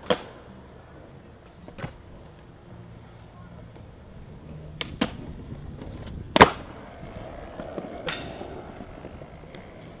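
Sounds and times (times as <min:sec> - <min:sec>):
skateboard clacking on ground: 0:00.0 - 0:00.5, 0:04.6 - 0:10.0
skateboard wheels rolling: 0:00.0 - 0:10.0.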